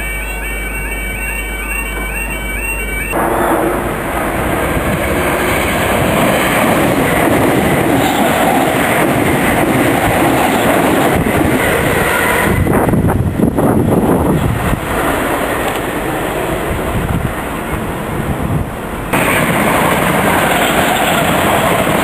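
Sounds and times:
train passing fast: 0.0 - 22.0.

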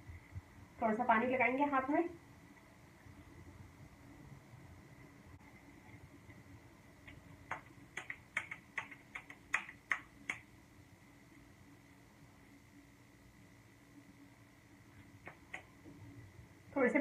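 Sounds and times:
wet hands slapping together: 7.5 - 10.4.

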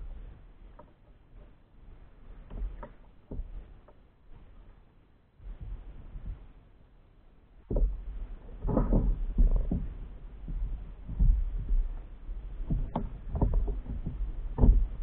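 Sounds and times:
water slapping against kayak hull: 7.7 - 15.0.

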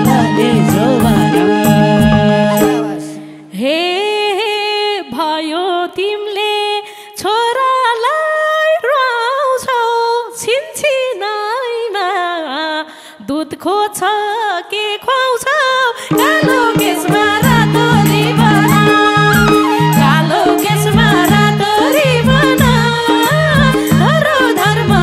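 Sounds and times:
unaccompanied folk melody: 0.0 - 3.4, 16.1 - 25.0.

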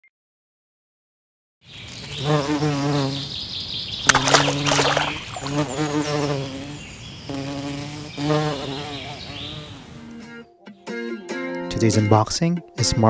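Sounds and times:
bee buzzing: 2.1 - 3.4, 4.0 - 10.0.

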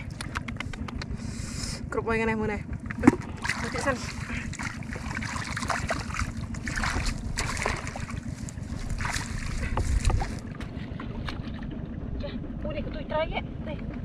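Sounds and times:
wind rumble on microphone: 0.0 - 14.0
water splashing and sloshing: 2.4 - 12.6.

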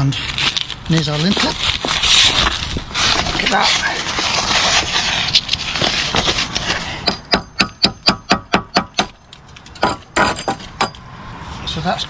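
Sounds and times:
sharp metallic taps on steel: 7.0 - 11.1.

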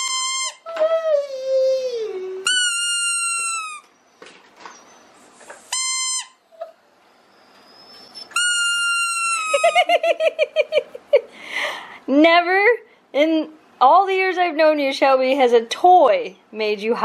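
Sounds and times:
squeaky toy squeaking: 0.0 - 0.8, 2.4 - 4.0, 4.8 - 6.8, 7.7 - 9.9.

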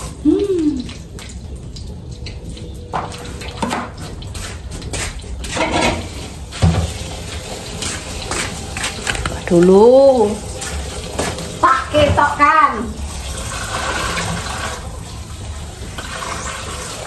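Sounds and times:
water splashing in sink: 0.0 - 17.0.

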